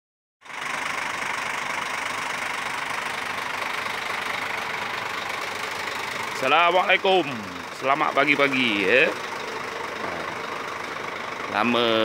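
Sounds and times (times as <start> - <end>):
diesel truck engine idling: 0.4 - 12.0.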